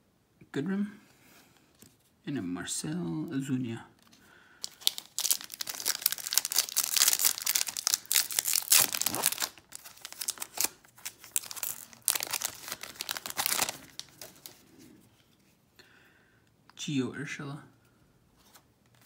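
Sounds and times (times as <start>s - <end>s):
foil wrapper crinkling and tearing: 4.6s - 14.6s.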